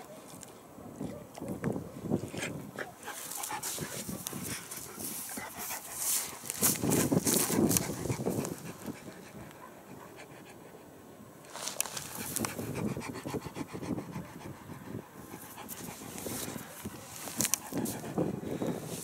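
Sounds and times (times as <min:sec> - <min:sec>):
dog panting: 0:02.5 - 0:11.0, 0:11.7 - 0:19.0.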